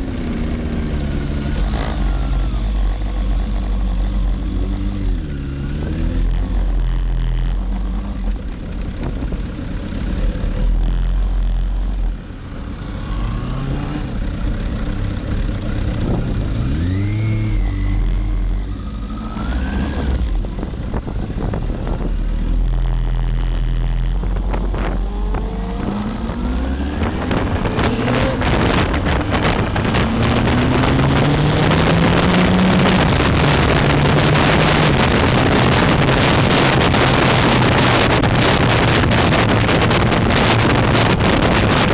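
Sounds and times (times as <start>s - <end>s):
motorcycle engine accelerating: 0.0s - 41.9s
wind rushing over microphone: 15.9s - 41.9s.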